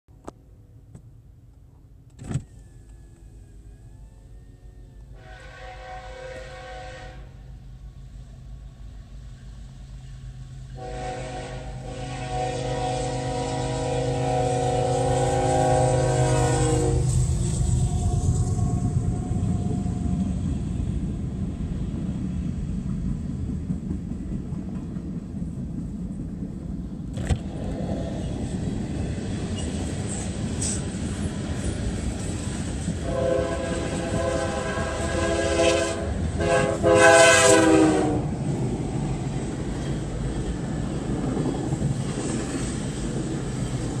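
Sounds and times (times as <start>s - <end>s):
freight train rumbling: 3.2s - 44.0s
locomotive horn chord: 5.1s - 7.5s, 10.8s - 17.3s, 33.0s - 38.2s.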